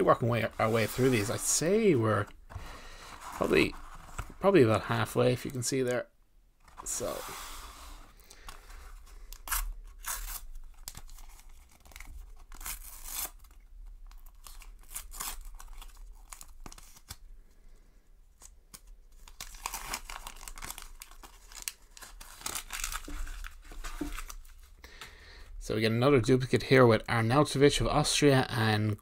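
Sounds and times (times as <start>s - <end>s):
paper wrapper ripping and crinkling: 8.4s - 17.2s, 18.4s - 24.7s.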